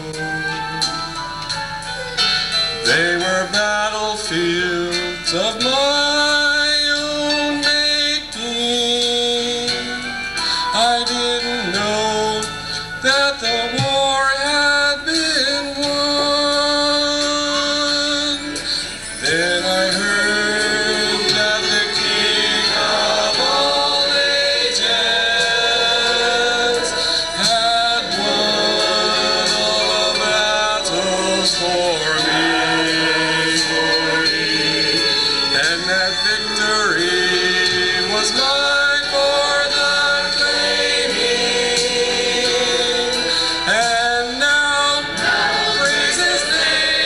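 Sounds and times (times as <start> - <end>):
choir singing a hymn: 19.2 - 44.0, 44.8 - 47.0.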